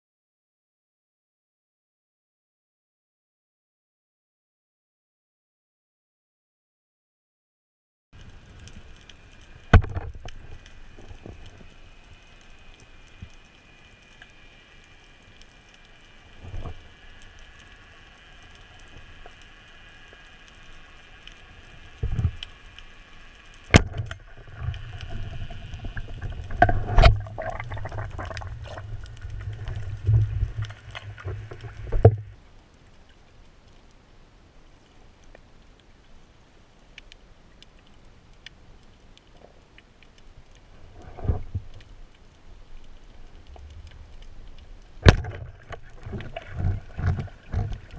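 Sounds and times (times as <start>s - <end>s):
muffled underwater thumps and clatter: 9.7s - 10.4s, 23.7s - 32.3s, 45.0s - 47.9s.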